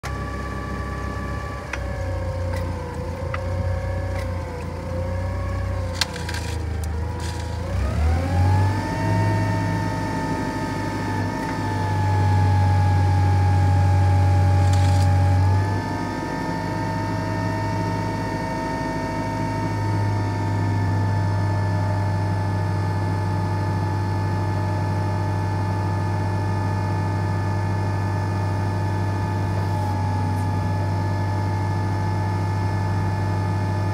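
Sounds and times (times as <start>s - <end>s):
forklift engine running: 0.0s - 33.9s.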